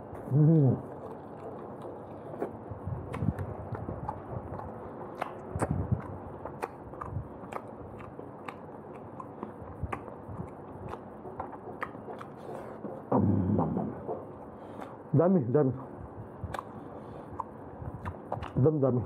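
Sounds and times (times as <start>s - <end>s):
chewing and lip-smacking: 0.2s - 13.1s, 16.3s - 18.7s
wet mouth clicks: 0.4s - 12.5s, 16.4s - 18.6s
brief vocal sound: 13.1s - 14.0s.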